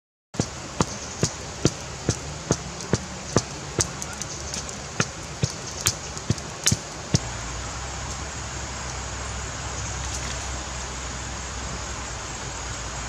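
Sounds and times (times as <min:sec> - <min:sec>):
wood fire crackling and popping: 0:00.4 - 0:07.2.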